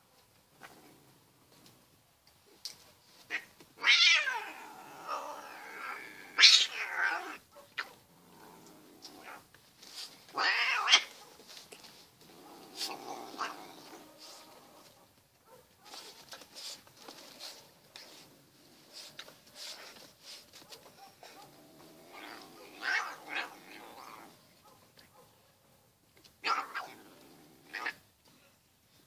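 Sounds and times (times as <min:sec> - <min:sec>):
cat yowling: 0:03.3 - 0:07.4, 0:10.4 - 0:11.1, 0:22.1 - 0:24.2.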